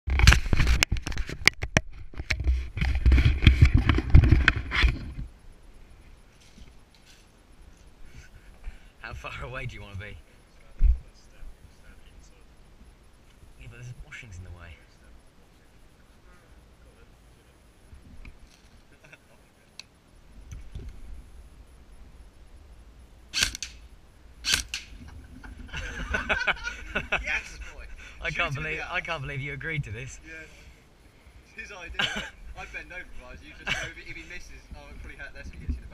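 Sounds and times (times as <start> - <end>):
toy rifle shots: 23.3 - 23.8, 24.4 - 25.0.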